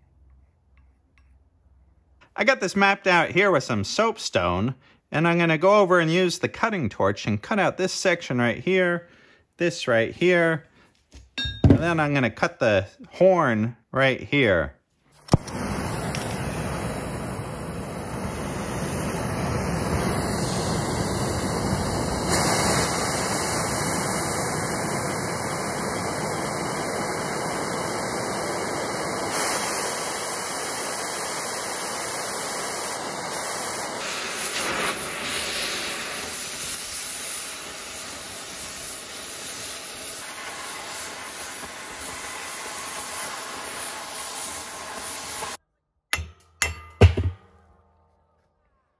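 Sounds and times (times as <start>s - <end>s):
cutting torch hissing: 15.2s - 45.6s.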